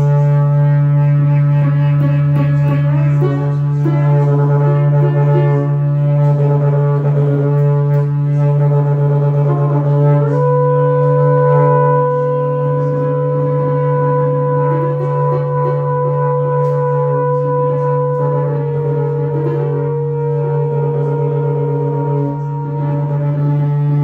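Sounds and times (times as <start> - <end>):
bowed cello: 0.0 - 24.0
didgeridoo drone: 0.0 - 24.0
long high held note: 0.0 - 24.0
trumpet: 0.0 - 24.0.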